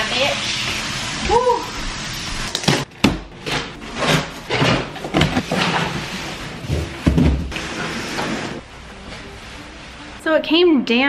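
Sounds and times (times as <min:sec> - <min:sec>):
cardboard scraping and rustling: 0:03.7 - 0:08.6.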